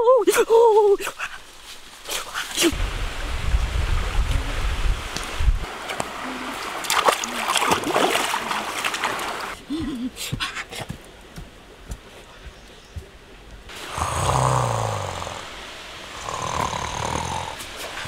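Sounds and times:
water splashing from wading: 5.2 - 9.6.

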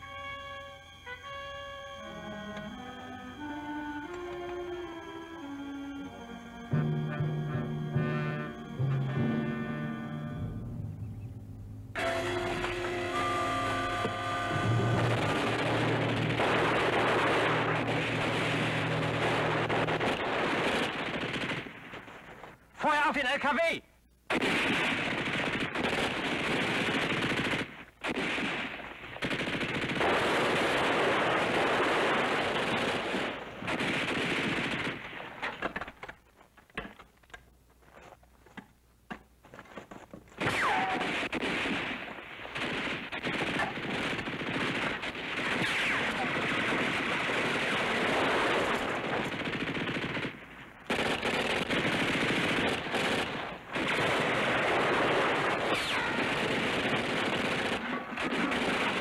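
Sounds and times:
machine-gun and rifle fire: 14.0 - 22.4, 24.3 - 35.8, 40.4 - 59.0.

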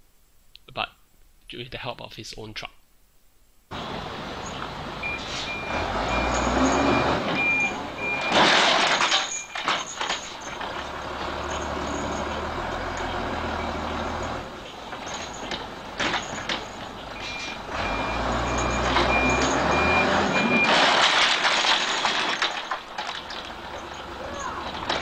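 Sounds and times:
truck engine running: 3.7 - 25.0
reversing alarm beeping: 4.4 - 8.5, 12.8 - 14.3, 17.2 - 20.8.

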